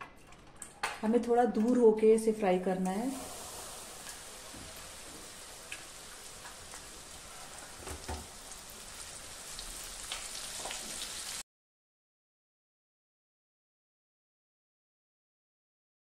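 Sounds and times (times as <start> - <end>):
corn deep-frying in oil: 2.8 - 11.4.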